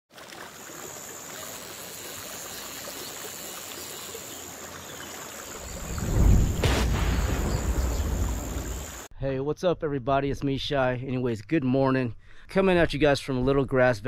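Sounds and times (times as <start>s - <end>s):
steady hiss: 1.0s - 9.1s
deep rumble: 5.6s - 9.0s
short whoosh: 5.7s - 9.1s.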